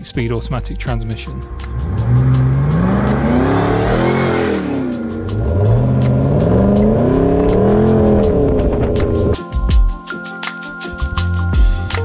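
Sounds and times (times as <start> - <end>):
car engine accelerating hard: 1.6 - 9.4.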